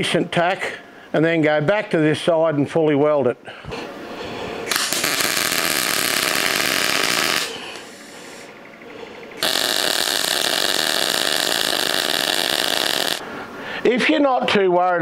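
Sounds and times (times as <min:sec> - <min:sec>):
welding arc buzzing: 0:04.7 - 0:08.3, 0:09.4 - 0:13.2.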